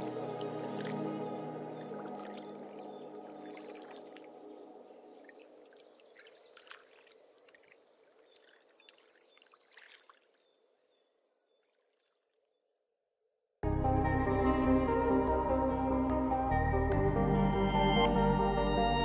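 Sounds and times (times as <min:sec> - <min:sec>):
ambient music held chord: 0:00.0 - 0:05.4, 0:13.6 - 0:19.0
trickling water-like ambience: 0:00.0 - 0:12.6.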